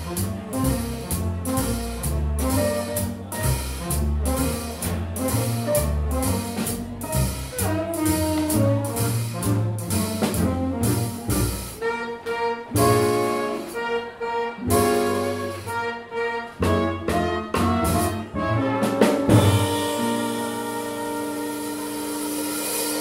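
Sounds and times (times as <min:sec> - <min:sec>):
drums and cymbal hits: 0:00.0 - 0:11.8, 0:17.0 - 0:23.0
brass horn chords: 0:00.0 - 0:23.0
swing jazz band playing: 0:00.0 - 0:23.0.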